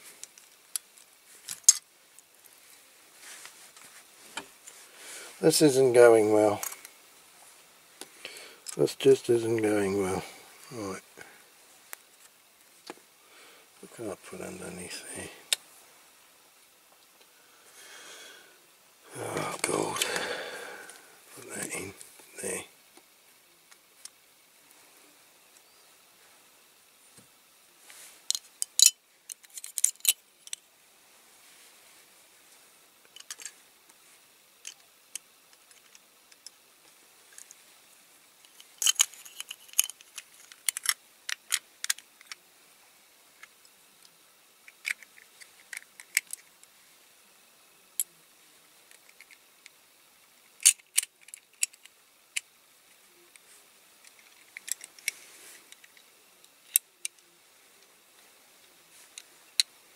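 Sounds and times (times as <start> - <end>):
toy parts clicking and tapping: 0.2 - 1.8, 28.3 - 30.6, 33.1 - 33.5, 38.4 - 42.4, 44.6 - 46.5, 50.5 - 52.5, 54.0 - 57.2.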